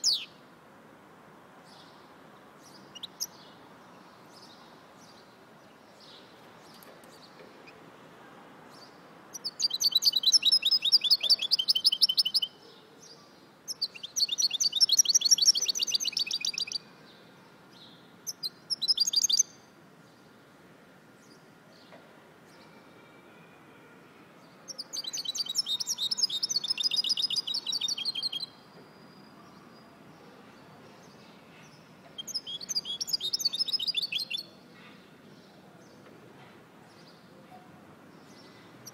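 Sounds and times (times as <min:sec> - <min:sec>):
finch singing twittering trills: 0:24.7 - 0:28.5, 0:31.0 - 0:34.5.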